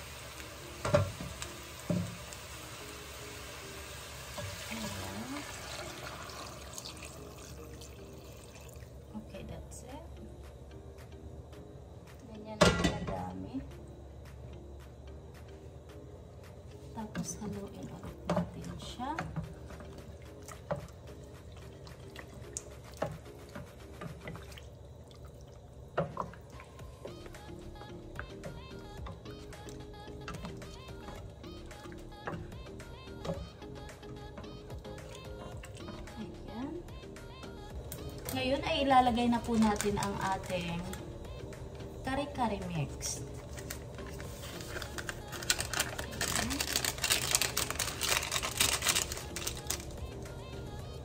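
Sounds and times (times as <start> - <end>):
broth pouring into a pot: 0.0 - 9.1
liquid sloshing in a pot: 19.3 - 27.2.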